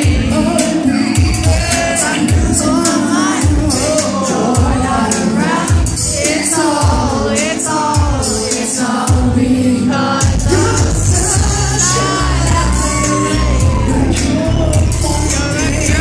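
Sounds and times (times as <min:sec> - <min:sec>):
amplified pop band: 0:00.0 - 0:16.0
man singing into microphone: 0:00.0 - 0:16.0.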